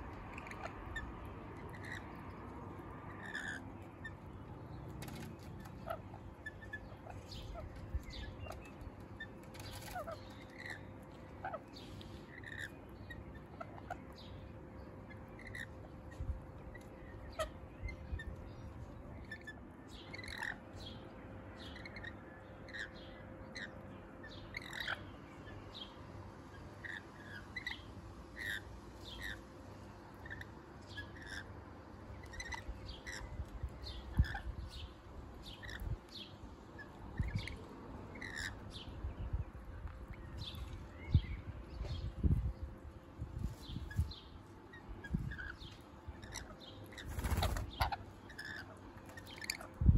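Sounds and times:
lorikeets chirping: 0:00.3 - 0:02.3, 0:03.1 - 0:04.3, 0:05.0 - 0:21.0, 0:21.6 - 0:26.0, 0:26.6 - 0:29.4, 0:30.2 - 0:31.5, 0:32.2 - 0:39.1, 0:43.5 - 0:49.8.

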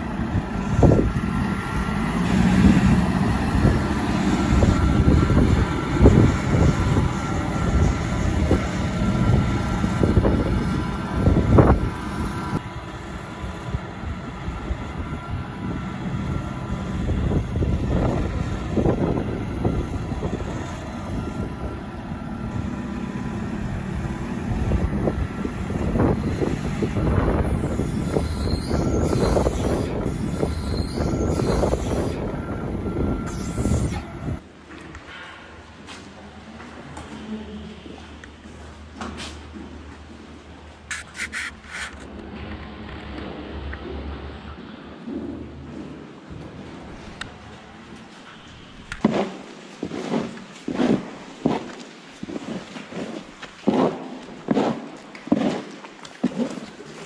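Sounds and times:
diesel engines rumbling: 0:00.0 - 0:54.4.

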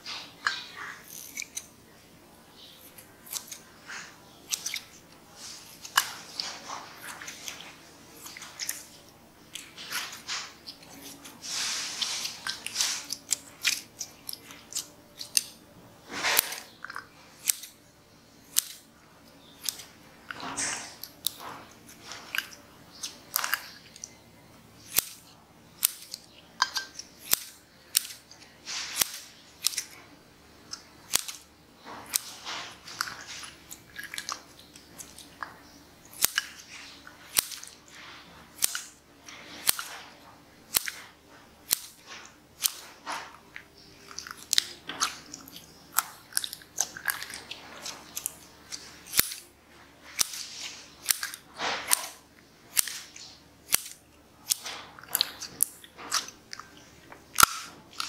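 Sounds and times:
sticky slime sounds: 0:00.0 - 0:17.8, 0:18.4 - 0:58.0
scissors snipping slime: 0:00.4 - 0:01.7, 0:02.9 - 0:04.9, 0:12.2 - 0:15.6, 0:16.3 - 0:17.8, 0:18.5 - 0:18.8, 0:19.6 - 0:19.9, 0:24.8 - 0:30.0, 0:30.7 - 0:36.7, 0:37.3 - 0:37.8, 0:38.6 - 0:40.0, 0:40.7 - 0:43.4, 0:44.1 - 0:49.5, 0:50.1 - 0:56.6.

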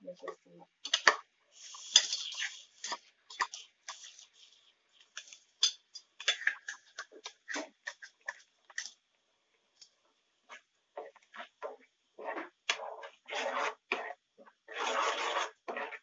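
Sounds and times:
faint sizzle: 0:00.0 - 0:16.0
tomato paste bubbling in oil: 0:00.7 - 0:16.0.

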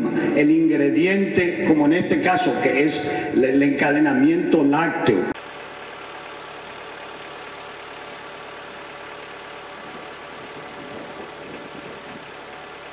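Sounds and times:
engine idling: 0:05.3 - 0:12.9.

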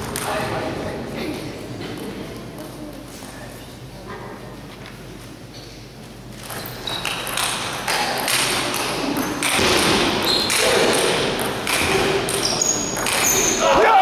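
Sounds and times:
shoe squeaks on hall floor: 0:05.5 - 0:07.6, 0:09.1 - 0:10.9, 0:12.2 - 0:13.8.

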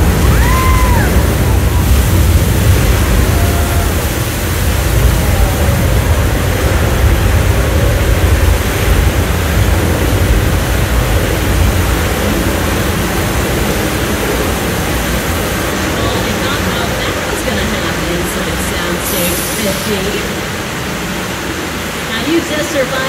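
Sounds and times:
deep rumble: 0:00.0 - 0:19.0
rushing noise: 0:00.0 - 0:23.0.

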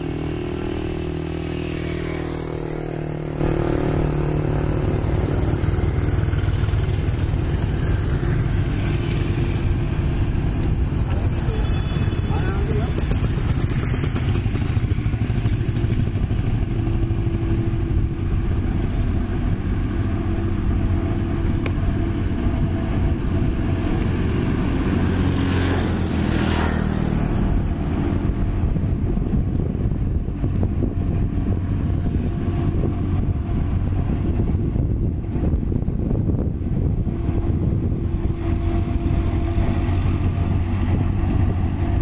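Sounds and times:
vehicle passing: 0:00.0 - 0:29.4
diesel engine running: 0:00.0 - 0:42.0
motorbikes passing: 0:00.0 - 0:42.0.

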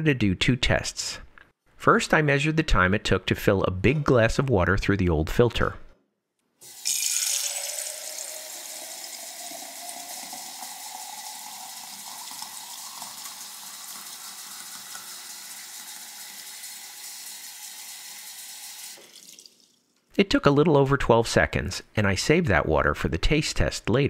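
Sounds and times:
water pouring into a glass: 0:06.6 - 0:19.8.

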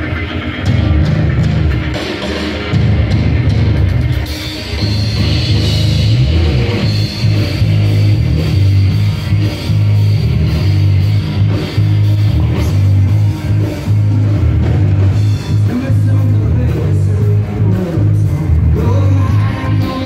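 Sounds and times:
electric guitar: 0:00.0 - 0:20.0
live rock band playing: 0:00.0 - 0:20.0.

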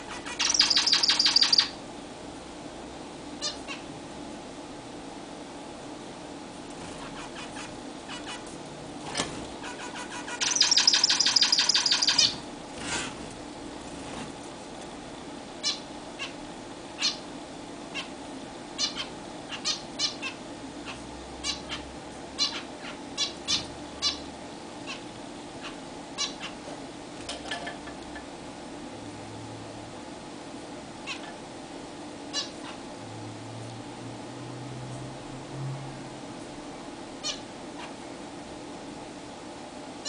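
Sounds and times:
finch buzzy pulsed call: 0:00.1 - 0:01.8, 0:09.6 - 0:12.4.

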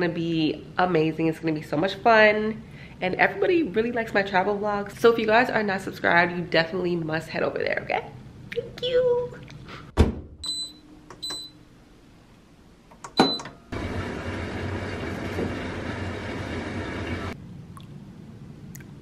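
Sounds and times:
washing machine door thump: 0:10.0 - 0:10.4
washing machine running: 0:13.2 - 0:17.4.

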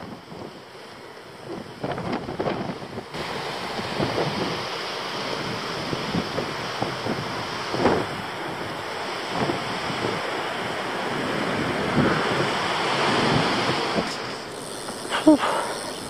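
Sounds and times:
wind buffeting microphone: 0:01.4 - 0:16.0.

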